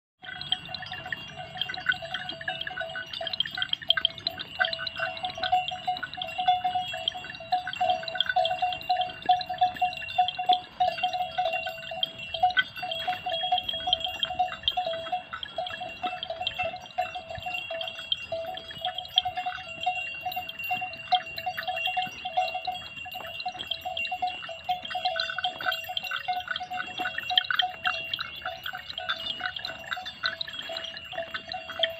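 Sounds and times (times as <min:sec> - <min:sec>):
cattle bells clanking: 0:00.2 - 0:31.9.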